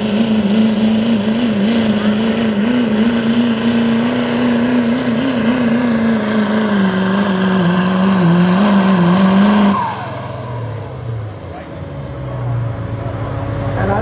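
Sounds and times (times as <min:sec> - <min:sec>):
diesel engine at full throttle: 0:00.0 - 0:14.0
turbo whistle winding down: 0:06.6 - 0:11.2.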